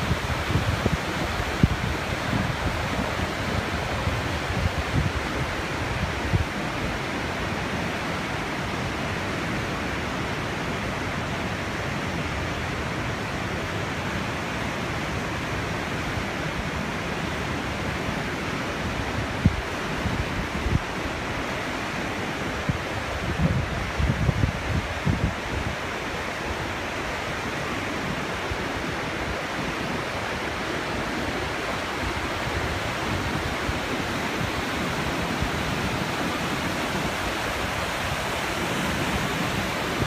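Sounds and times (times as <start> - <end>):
wind buffeting microphone: 0.0 - 7.0, 22.5 - 27.5
whitewater rushing over boulders: 0.0 - 40.0.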